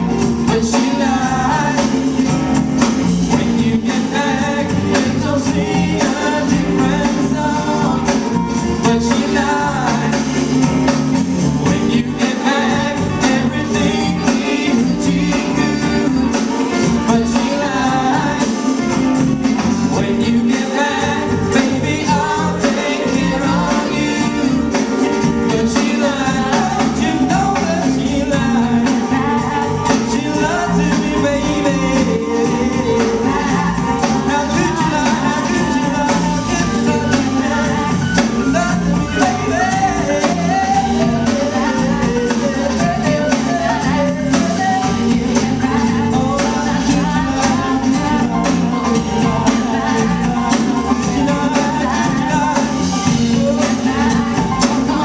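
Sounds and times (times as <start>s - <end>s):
drums: 0.0s - 55.0s
man singing lead vocals: 0.0s - 55.0s
women singing backing vocals: 3.3s - 10.5s, 19.9s - 55.0s.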